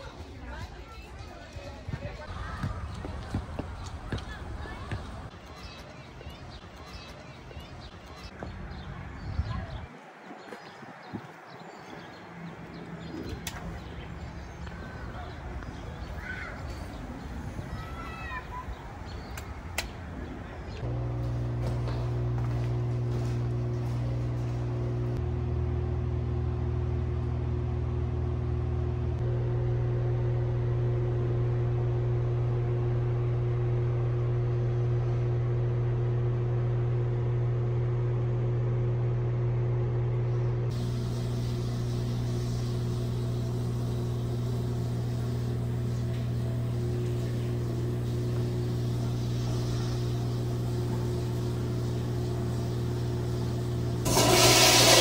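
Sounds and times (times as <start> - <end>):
toilet flushing: 53.2 - 55.0.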